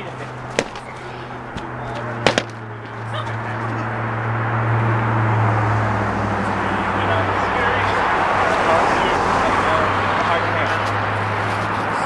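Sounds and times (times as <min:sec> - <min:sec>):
padded sword striking shield: 0:00.6 - 0:00.9, 0:02.3 - 0:02.6.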